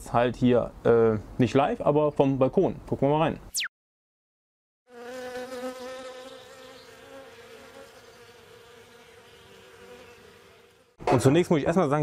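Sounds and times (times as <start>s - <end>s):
honeybees buzzing: 4.9s - 11.0s.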